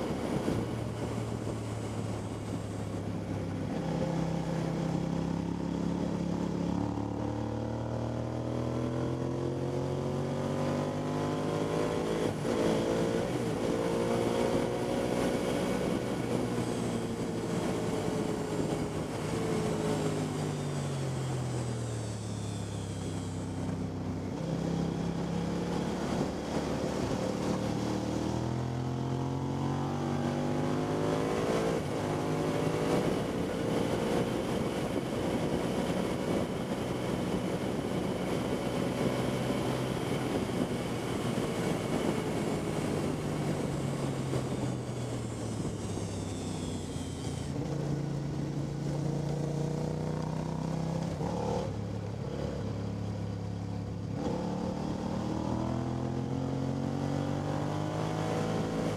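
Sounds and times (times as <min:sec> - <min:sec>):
wind rush: 0:00.0 - 0:04.4, 0:24.2 - 0:28.5, 0:29.7 - 0:49.0
motorcycle engine revving: 0:21.6 - 0:58.9.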